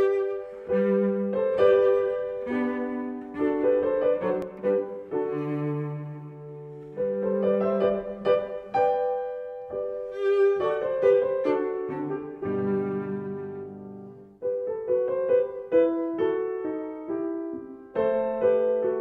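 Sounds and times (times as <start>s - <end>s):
bowed strings: 0.0s - 14.4s
piano chords: 0.0s - 19.0s.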